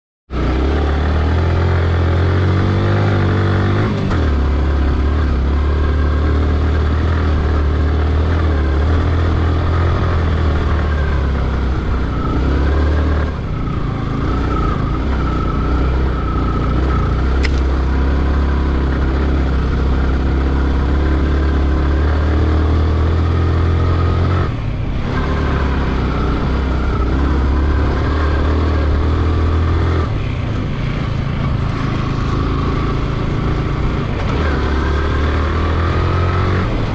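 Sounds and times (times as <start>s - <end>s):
motorcycle engine under load: 0.5s - 25.9s.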